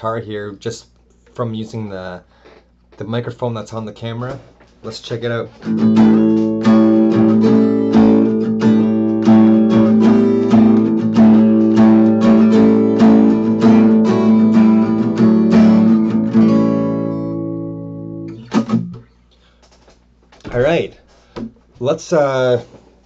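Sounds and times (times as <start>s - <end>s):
acoustic guitar strumming: 5.5s - 19.1s.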